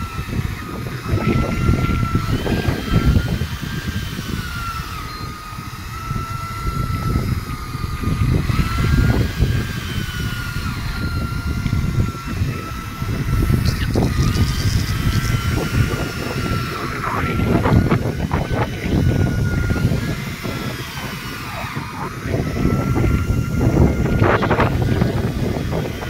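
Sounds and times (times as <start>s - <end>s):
boat engine rumble: 0.0s - 26.0s
thin wavering whine: 0.0s - 26.0s
wind buffeting microphone: 0.0s - 26.0s.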